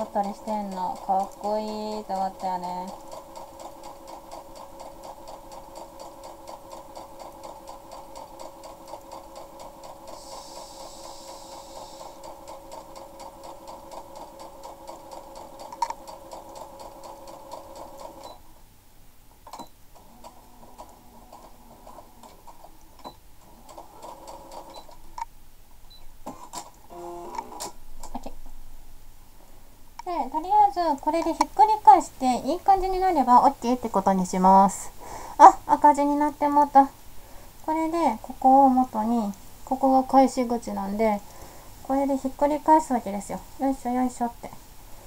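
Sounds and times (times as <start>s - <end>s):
sewing machine stitching: 0.0s - 18.4s, 19.5s - 25.0s.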